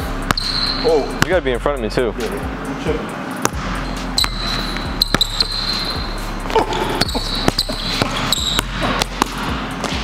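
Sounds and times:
basketball bouncing on wooden floor: 5.0s - 5.6s.

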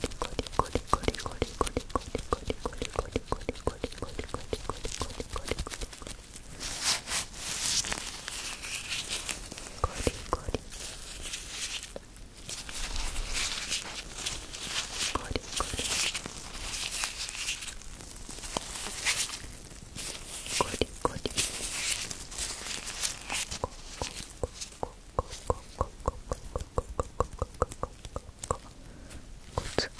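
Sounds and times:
rubber gloves rubbing: 0.0s - 29.9s.

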